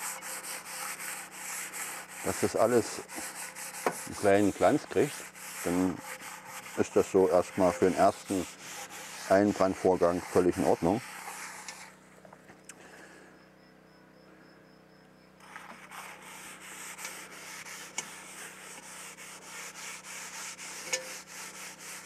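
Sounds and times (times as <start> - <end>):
paper towel scrubbing pot: 0.0 - 12.0, 15.8 - 22.0.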